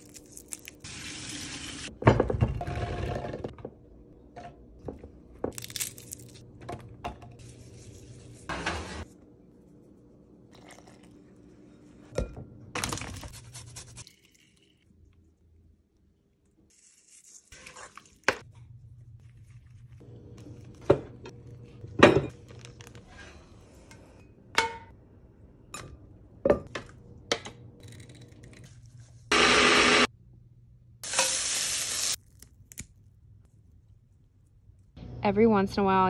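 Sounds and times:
food sizzling: 0:00.0 - 0:01.9, 0:31.0 - 0:32.2.

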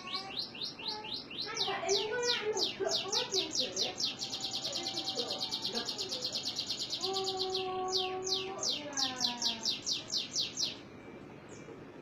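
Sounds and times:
canary singing: 0:00.0 - 0:11.8.

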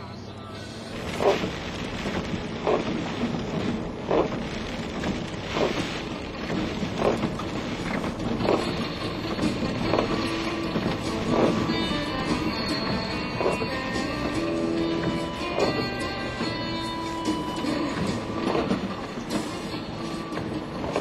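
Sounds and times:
vehicle rumble: 0:00.0 - 0:21.0.

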